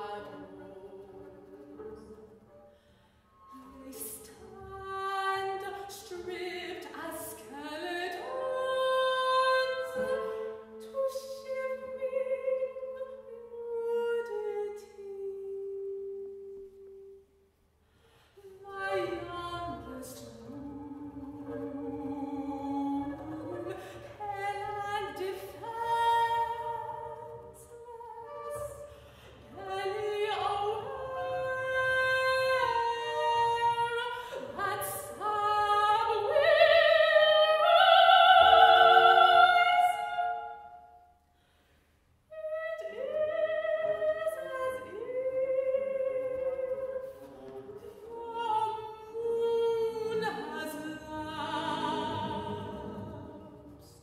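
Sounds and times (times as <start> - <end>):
soprano singing opera: 0.0 - 1.8, 3.4 - 17.2, 18.4 - 40.9, 42.3 - 54.0
bowed double bass: 18.4 - 40.4, 43.1 - 54.0.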